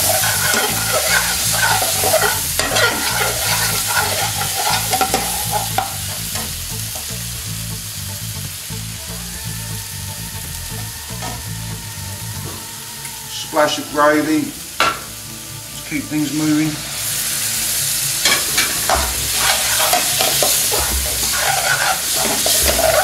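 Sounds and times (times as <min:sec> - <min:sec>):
metal spoon scraping pan: 0:00.0 - 0:07.1, 0:18.2 - 0:23.0
onions sizzling in frying pan: 0:00.0 - 0:23.0.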